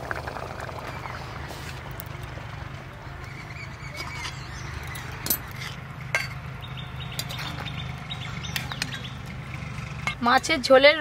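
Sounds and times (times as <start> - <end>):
birds chirping faintly: 3.0 - 10.0.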